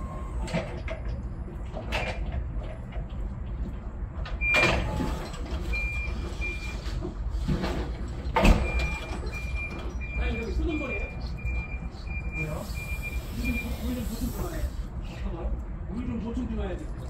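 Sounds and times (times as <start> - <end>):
forklift engine running: 0.0 - 14.9
high reversing beeps: 8.6 - 14.0.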